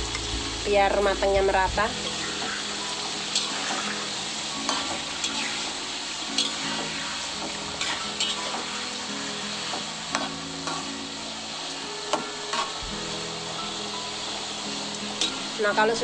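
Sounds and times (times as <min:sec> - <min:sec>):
meat sizzling in hot oil: 0:00.0 - 0:16.0
metal spatula scraping a wok: 0:02.0 - 0:11.0, 0:12.1 - 0:12.8.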